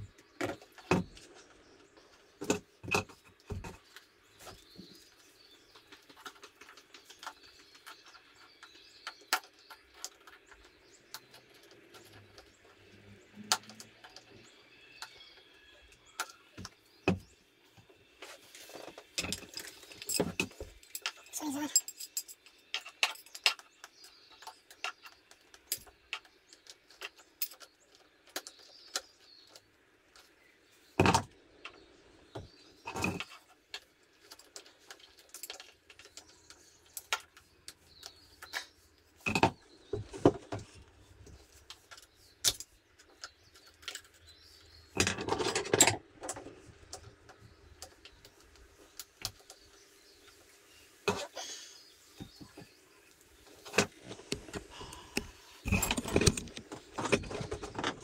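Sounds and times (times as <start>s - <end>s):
metallic clinks of hand tools: 19.3s - 23.4s.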